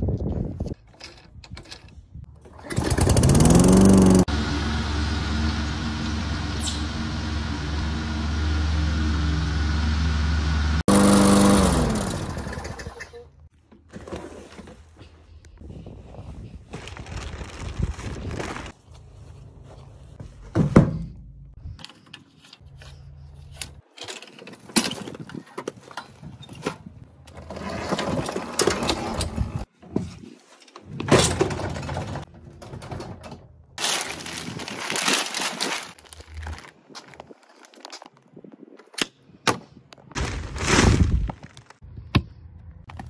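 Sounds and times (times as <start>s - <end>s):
rustling and scraping: 13.5s - 38.3s
knocks and thunks: 20.4s - 21.3s.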